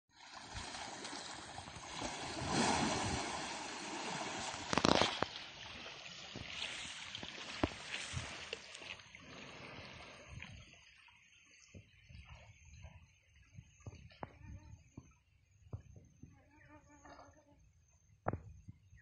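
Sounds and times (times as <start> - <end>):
water sloshing and splashing: 0.1 - 14.3.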